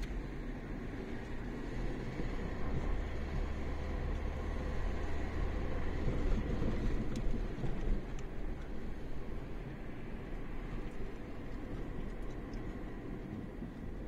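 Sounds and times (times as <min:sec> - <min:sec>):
car engine and road hum: 0:00.0 - 0:14.0.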